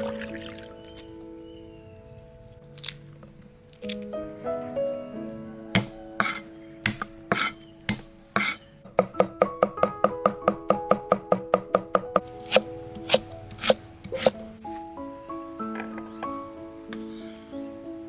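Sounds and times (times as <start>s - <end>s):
background music with sustained tones: 0.0s - 18.0s
cleaver chopping on board: 10.9s - 14.4s.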